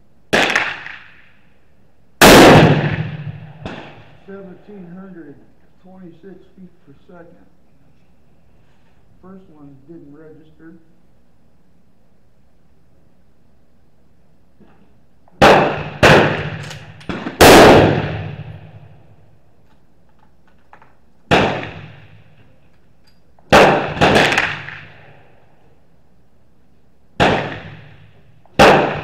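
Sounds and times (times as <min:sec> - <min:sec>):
echoing gunshots: 0:00.3 - 0:01.5, 0:02.2 - 0:04.5, 0:15.4 - 0:19.3, 0:21.3 - 0:22.4, 0:23.5 - 0:25.5, 0:27.2 - 0:29.0.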